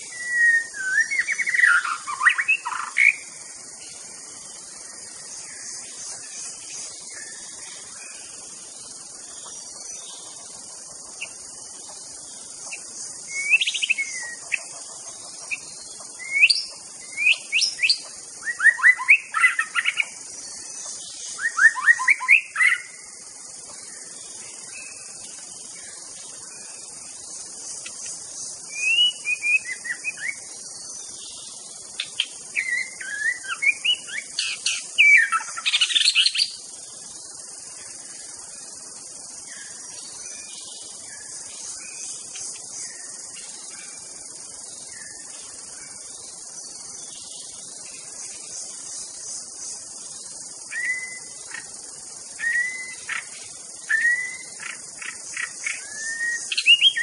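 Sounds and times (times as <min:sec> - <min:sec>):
steady high hiss: 0:00.0 - 0:57.0
bird singing whistled phrases: 0:00.1 - 0:02.9, 0:13.3 - 0:14.4, 0:16.2 - 0:20.0, 0:21.4 - 0:22.9, 0:28.8 - 0:30.4, 0:32.6 - 0:36.4, 0:50.7 - 0:51.2, 0:52.4 - 0:53.2, 0:53.9 - 0:54.5, 0:55.8 - 0:57.0.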